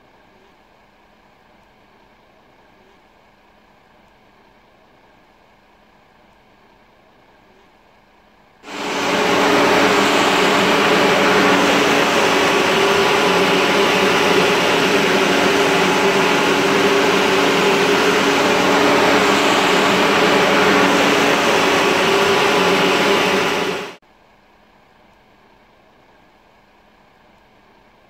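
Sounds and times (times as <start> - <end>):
engine-driven machine hum and hiss: 8.6 - 24.0.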